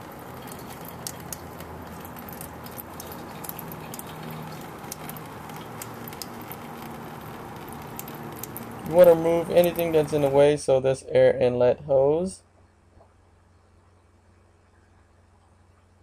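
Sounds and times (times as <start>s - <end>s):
liquid trickling into pan: 0.0s - 10.3s
drops splashing: 0.0s - 10.4s
faint low hum: 0.0s - 16.0s.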